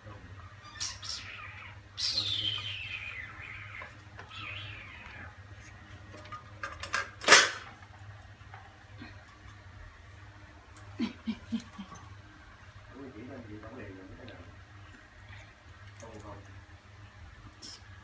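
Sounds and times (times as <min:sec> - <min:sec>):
baby monkey squealing: 0:00.4 - 0:05.3.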